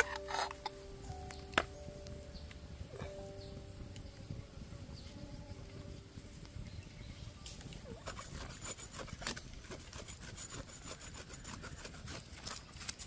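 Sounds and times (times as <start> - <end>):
quick scraping strokes: 8.0 - 13.0.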